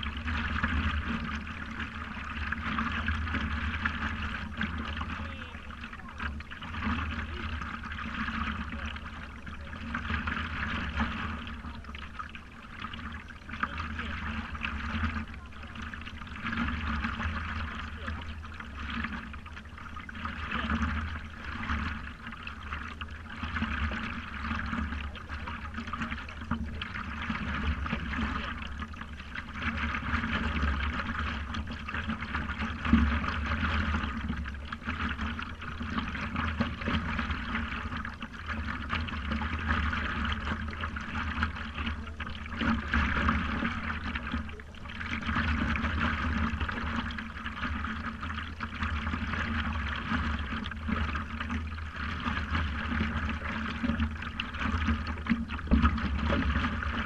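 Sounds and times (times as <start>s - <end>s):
water lapping and splashing: 0.0s - 57.0s.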